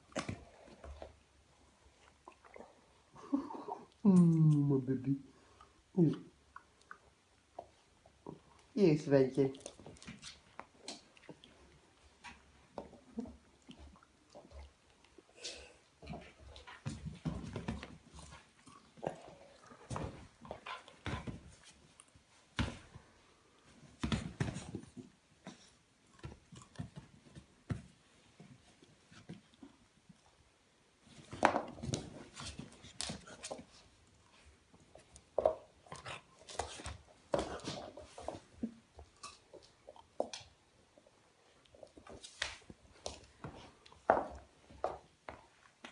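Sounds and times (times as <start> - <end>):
puppy paws tapping on wooden floor: 41.7 - 45.9.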